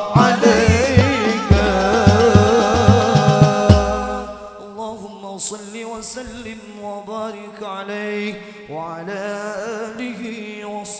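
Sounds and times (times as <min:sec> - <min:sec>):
low held tone: 0:00.0 - 0:04.6
man chanting: 0:00.0 - 0:10.9.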